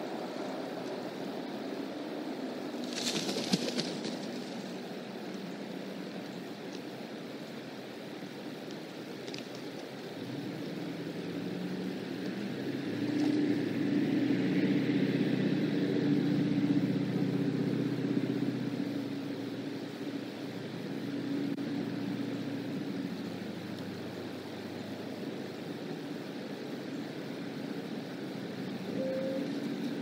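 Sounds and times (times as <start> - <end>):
vehicle engine passing: 10.2 - 24.2.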